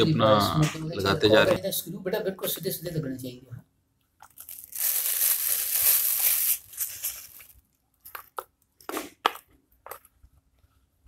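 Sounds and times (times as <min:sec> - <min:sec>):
plastic crunching and rustling: 0:04.2 - 0:08.4.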